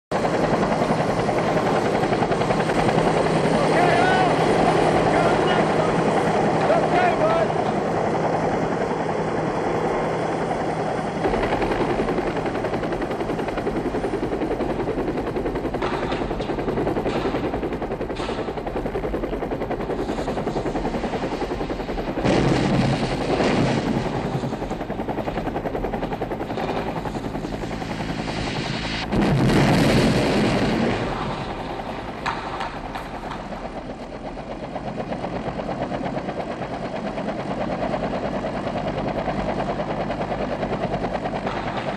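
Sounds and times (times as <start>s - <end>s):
helicopter rotor and engine: 0.1s - 41.9s
machine-gun and rifle fire: 22.2s - 24.6s.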